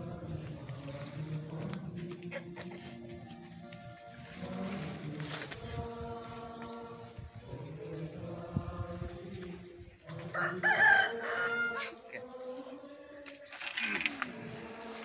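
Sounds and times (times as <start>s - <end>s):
rooster crowing: 10.3s - 12.1s.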